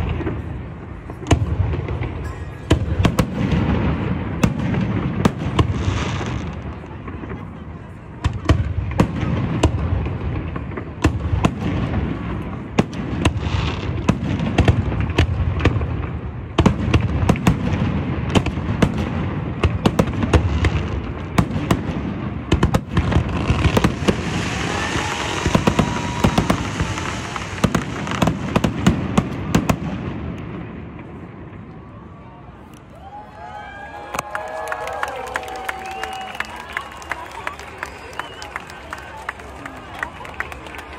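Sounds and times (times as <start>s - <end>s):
fireworks bursting: 0.0s - 31.7s
fireworks crackling: 0.0s - 31.8s, 34.1s - 40.9s.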